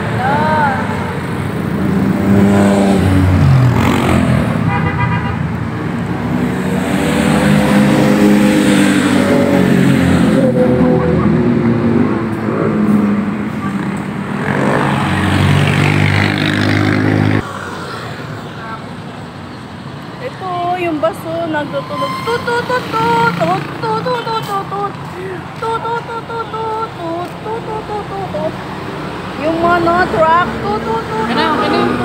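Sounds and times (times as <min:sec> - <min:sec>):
vehicles passing close by: 0:00.0 - 0:32.0.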